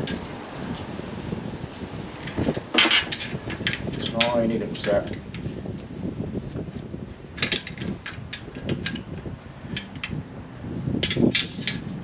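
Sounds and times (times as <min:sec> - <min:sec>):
metallic clicks and knocks of pipe: 0:07.4 - 0:09.1, 0:09.7 - 0:10.2, 0:11.0 - 0:11.9.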